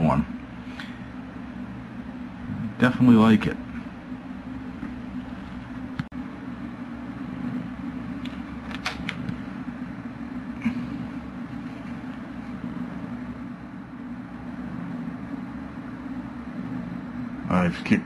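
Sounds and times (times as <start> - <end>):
low hum with faint hiss: 0.0 - 18.0.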